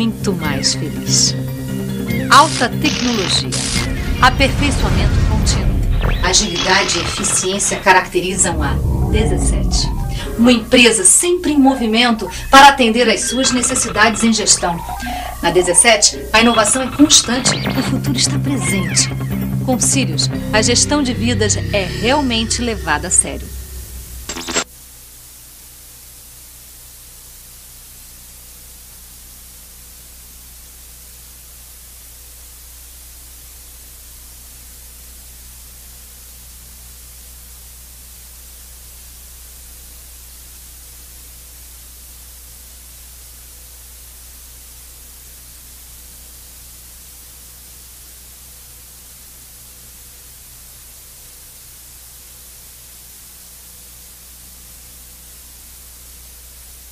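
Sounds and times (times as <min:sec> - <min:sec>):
voice and music: 0:02.2 - 0:24.6
low hum: 0:03.8 - 0:18.1, 0:19.6 - 0:24.7
faint steady high tones: 0:06.1 - 0:17.8, 0:19.8 - 0:24.6.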